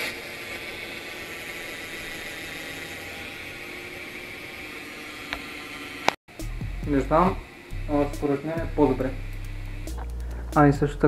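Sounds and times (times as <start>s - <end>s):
bicycle wheel spinning whir: 0.0s - 11.0s.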